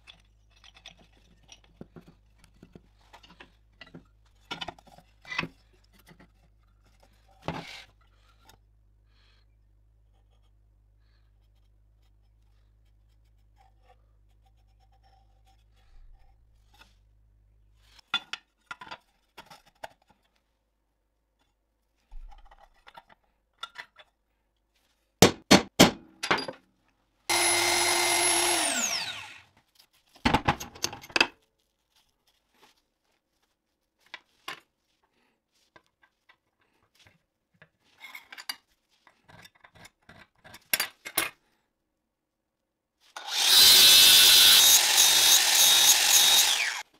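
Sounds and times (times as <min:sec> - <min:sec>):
drill press running: 0:27.3 - 0:29.4, 0:43.2 - 0:46.8.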